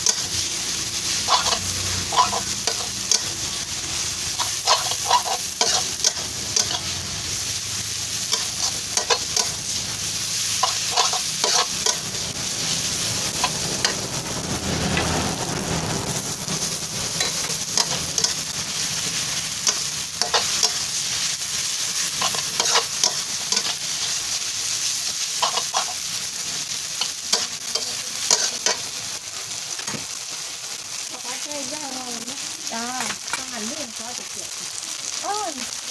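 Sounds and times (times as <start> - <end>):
metal spatula scraping a wok: 0.0 - 7.4, 8.1 - 28.9
noodles sizzling in a wok: 0.0 - 35.9.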